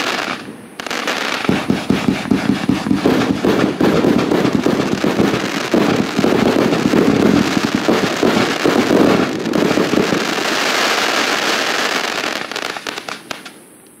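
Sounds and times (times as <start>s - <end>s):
fireworks firing bursts: 0.0s - 13.6s
firework crackling: 0.0s - 13.9s.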